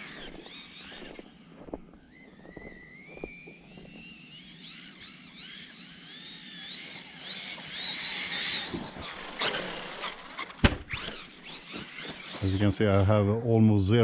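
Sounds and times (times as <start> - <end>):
electric motor whining: 0.0 - 13.1
toy truck landing thud: 8.6 - 11.2.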